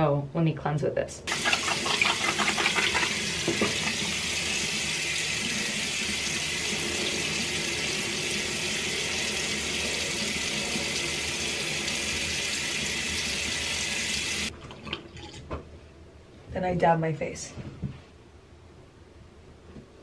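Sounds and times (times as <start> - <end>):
tap running into sink: 1.3 - 4.3.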